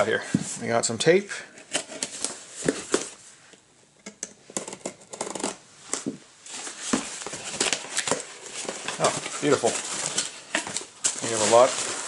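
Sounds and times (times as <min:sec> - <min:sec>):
packing tape scraping and ripping: 0:04.6 - 0:12.0.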